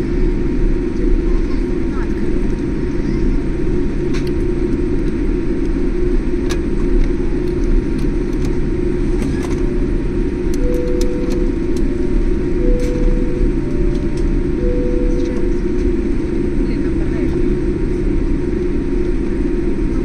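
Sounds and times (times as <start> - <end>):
jet engines and wheels rumbling: 0.0 - 20.0
faint short tone: 10.6 - 11.7, 12.6 - 16.0.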